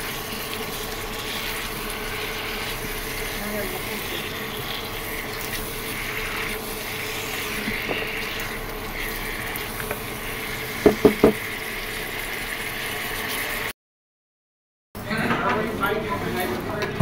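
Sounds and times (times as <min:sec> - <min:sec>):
vegetables sizzling in oil: 0:00.0 - 0:13.7
quick knocks: 0:10.8 - 0:11.4.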